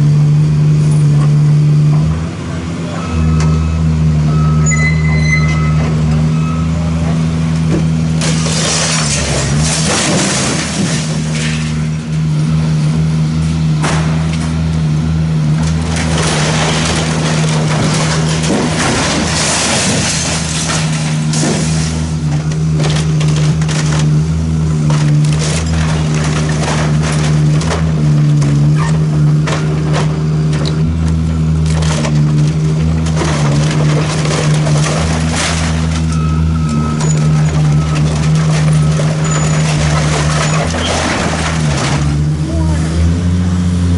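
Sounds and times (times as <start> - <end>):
diesel engine humming: 0.0 - 43.9
wood splintering: 7.6 - 11.9, 15.6 - 42.4
debris crashing down: 7.8 - 12.2, 15.6 - 42.4.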